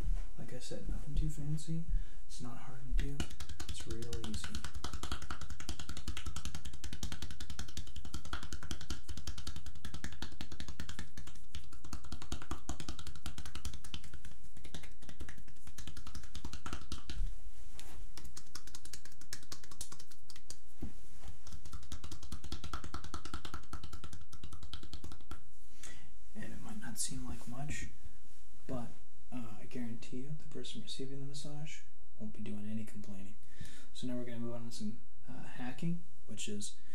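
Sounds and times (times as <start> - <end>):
cupped hands patting bare back: 3.0 - 25.5.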